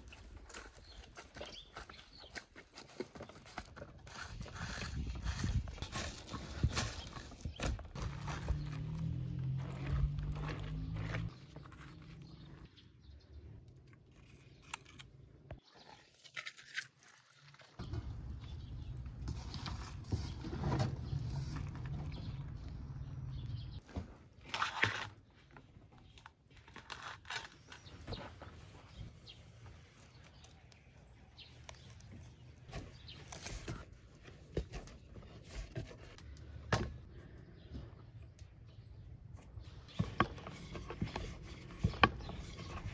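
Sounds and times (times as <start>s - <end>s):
firewood knocks and scrapes: 0.4s - 12.7s, 17.8s - 26.0s, 31.8s - 37.1s, 39.4s - 42.9s.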